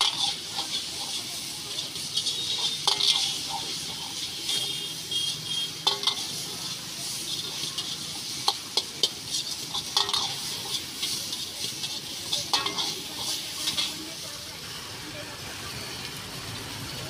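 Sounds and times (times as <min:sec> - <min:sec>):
metal ladle scraping a wok: 0:00.0 - 0:14.4
food sizzling in a pan: 0:00.0 - 0:17.0.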